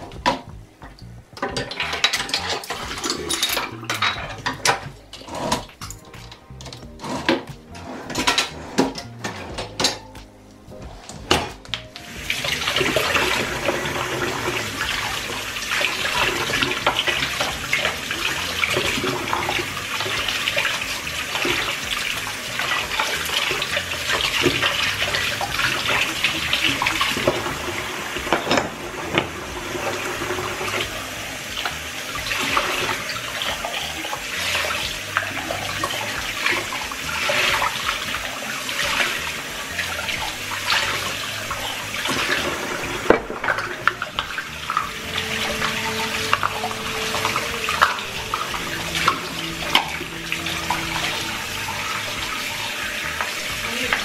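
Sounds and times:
kitchen tap running into sink: 12.1s - 54.0s.

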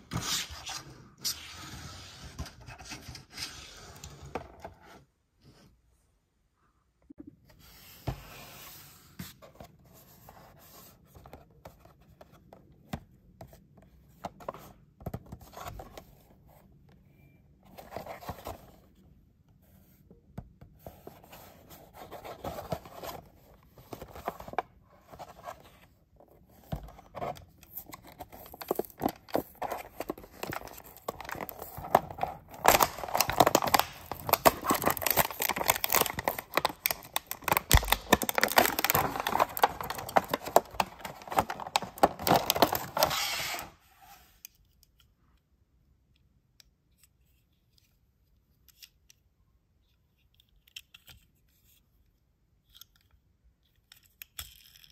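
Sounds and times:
plastic blister crackling and tearing: 28.4s - 43.4s
hands tapping plastic package: 32.6s - 43.0s.

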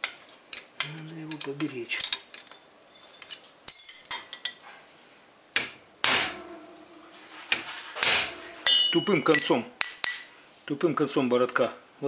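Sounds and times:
hammer striking metal punch: 5.6s - 10.2s.

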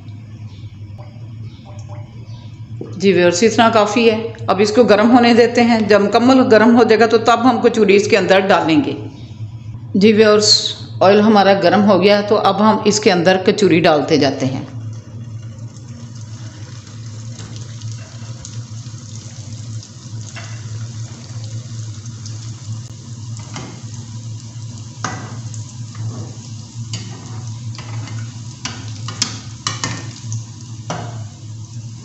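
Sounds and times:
steady low hum: 0.0s - 32.0s
food sizzling in hot oil: 14.8s - 32.0s.

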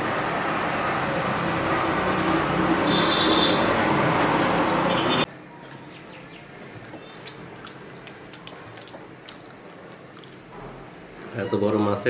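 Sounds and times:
child chewing wet clicks: 4.2s - 11.1s.

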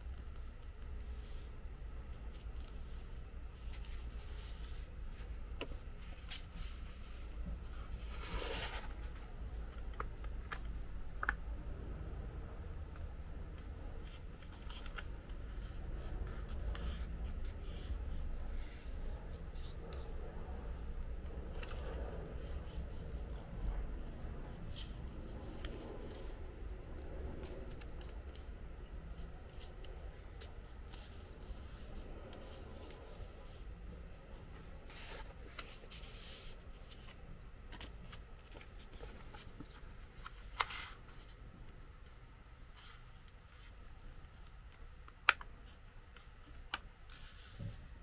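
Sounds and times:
paper rustling and crinkling: 1.1s - 11.4s, 13.5s - 41.4s.

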